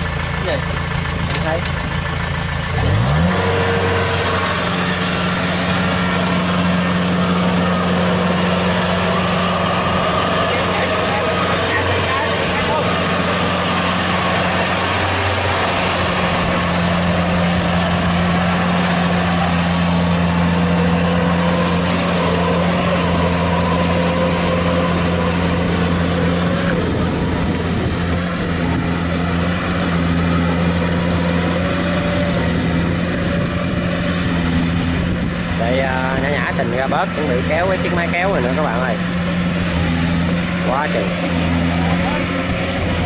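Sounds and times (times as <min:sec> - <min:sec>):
diesel engine droning: 0:00.0 - 0:43.0.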